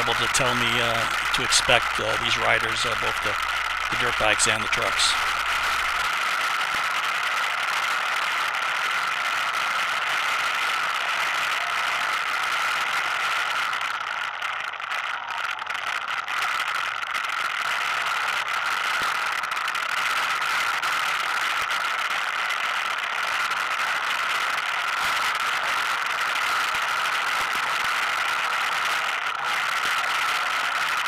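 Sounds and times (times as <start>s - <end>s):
atv engine running: 0.0s - 6.0s.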